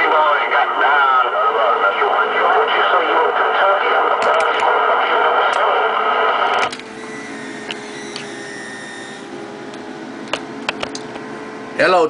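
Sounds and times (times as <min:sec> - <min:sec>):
radio static hiss: 0:00.0 - 0:06.6
rough radio signal: 0:00.0 - 0:06.6
whining radio tones: 0:00.0 - 0:09.6.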